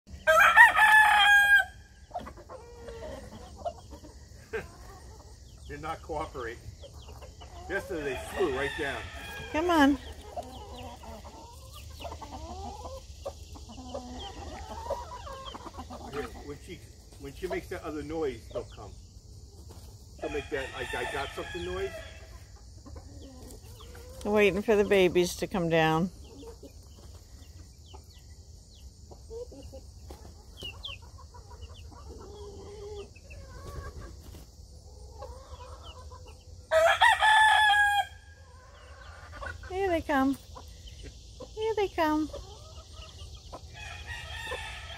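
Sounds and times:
loud drawn-out chicken call: 0:00.1 - 0:01.9, 0:36.7 - 0:39.0
chicks peeping: 0:00.1 - 0:44.9
hen clucking softly: 0:02.0 - 0:16.7, 0:22.3 - 0:28.3, 0:29.0 - 0:36.5, 0:38.5 - 0:43.8.

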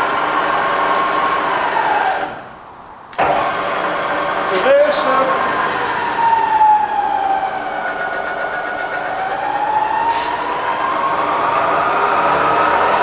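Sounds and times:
milling machine whine: 0:03.2 - 0:13.0.

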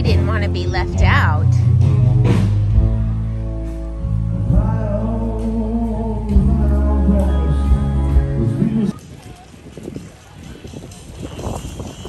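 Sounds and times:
deep bass: 0:00.0 - 0:09.0.

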